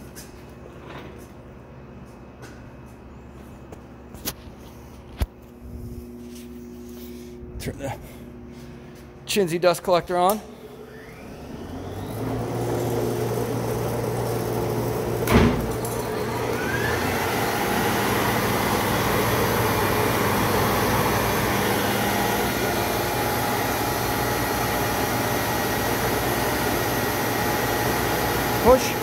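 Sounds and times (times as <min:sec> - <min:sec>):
dust collector humming: 0:05.5 - 0:29.0
planer motor whine: 0:10.6 - 0:29.0.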